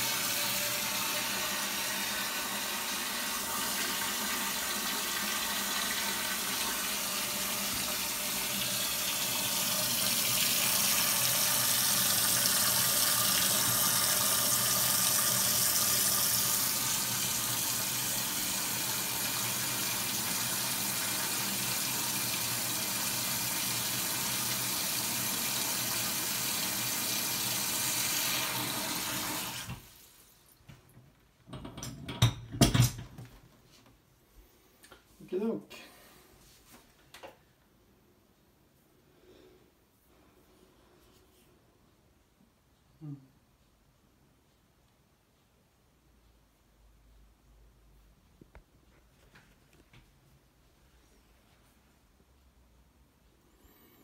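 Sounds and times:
faucet sprayer filling metal pot: 0.0s - 30.2s.

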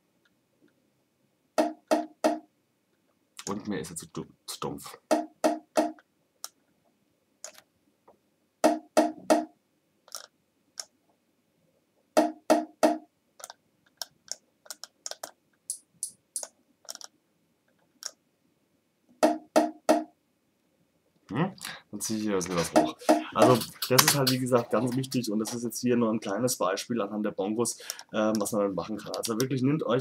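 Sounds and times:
bongo hand strikes: 5.1s - 6.0s.

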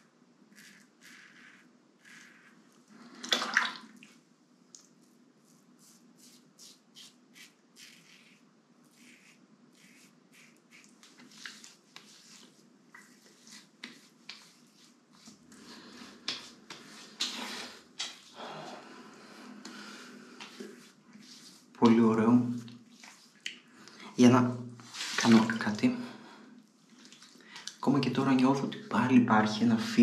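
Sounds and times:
razor scraping stubble: 0.5s - 2.6s, 5.8s - 15.4s
water splash: 3.2s - 4.2s.

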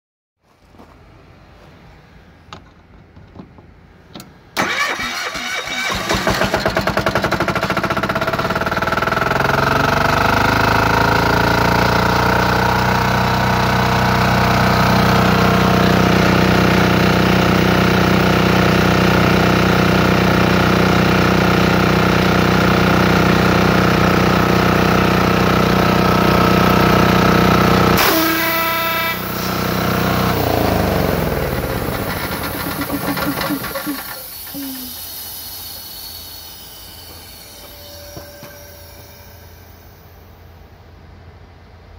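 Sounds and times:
air compressor engine running: 4.6s - 38.8s
hiss and rapid pulsing: 31.9s - 37.9s.

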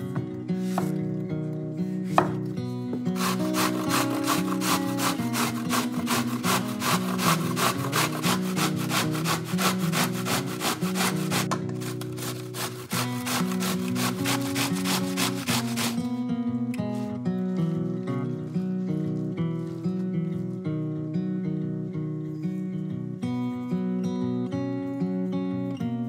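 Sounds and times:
background music: 1.8s - 17.5s
knife chop on cutting board: 2.2s - 2.4s
zucchini scraping on box grater: 3.1s - 16.1s.

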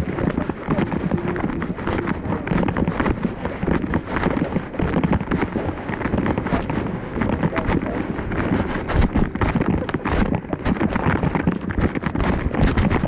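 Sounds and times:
camera handling rubbing and knocking: 0.0s - 13.0s.

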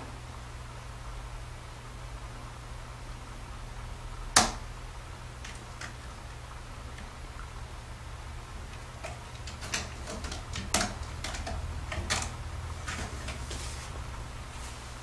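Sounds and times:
steady low hum: 0.0s - 15.0s
cat claws scratching rope: 9.0s - 14.0s.

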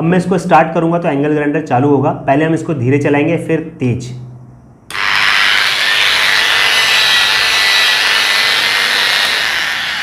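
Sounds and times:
angle grinder whirring: 4.9s - 10.0s.

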